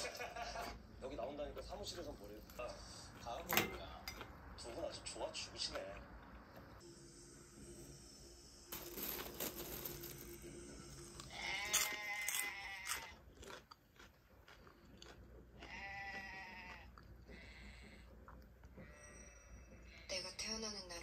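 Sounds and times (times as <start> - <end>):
crunching rustle: 8.7 - 10.6
goats bleating: 11.3 - 13.2, 15.6 - 17.4.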